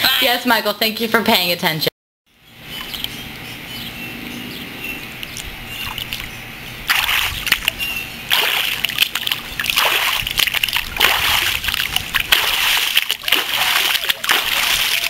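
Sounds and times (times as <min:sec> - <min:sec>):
feet splashing in water: 0:06.9 - 0:15.0.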